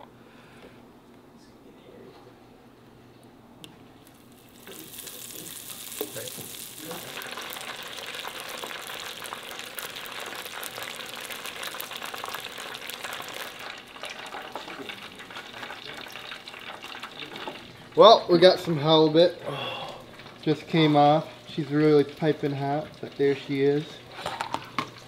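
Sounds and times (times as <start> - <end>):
fish deep-frying in oil: 4.1 - 18.0, 20.0 - 24.2.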